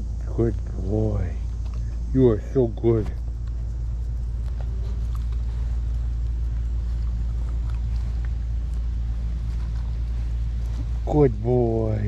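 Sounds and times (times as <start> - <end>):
steady low rumble: 0.0 - 12.0
faint ticks: 3.0 - 11.0.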